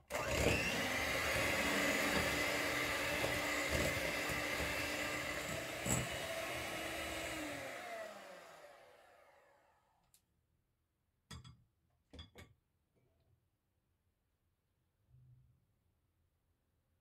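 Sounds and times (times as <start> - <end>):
electric hand mixer whirring: 0.0 - 10.0.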